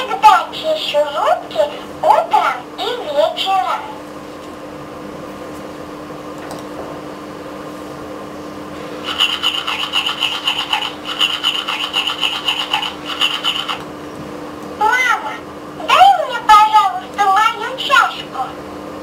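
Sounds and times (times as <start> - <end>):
toy speaker tooth-brushing scrubbing: 9.0 - 13.8.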